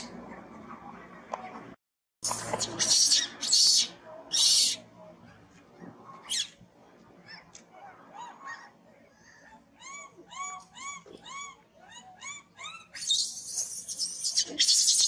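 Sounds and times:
baby monkey shrieking: 2.6 - 4.8, 6.3 - 6.6, 9.8 - 15.0
baby monkey whimpering calls: 9.8 - 15.0.

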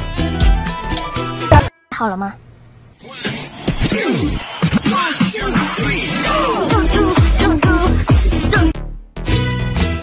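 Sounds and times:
electronic dance music: 3.9 - 8.8.

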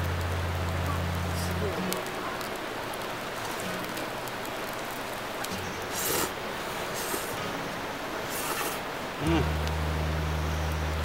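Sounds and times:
wood fire crackling: 0.0 - 11.0.

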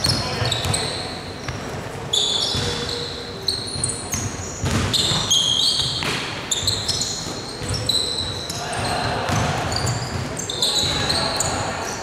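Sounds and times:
sneakers squeaking: 0.0 - 12.0
basketball bouncing on hardwood: 4.1 - 5.0.

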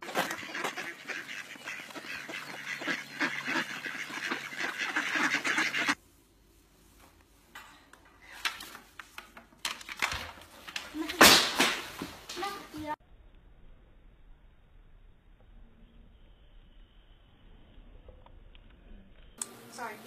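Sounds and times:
flock of ducks quacking: 0.0 - 6.0.

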